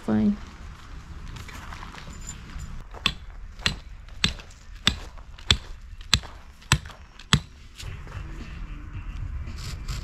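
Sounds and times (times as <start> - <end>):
hammer striking tent stake: 2.9 - 7.6.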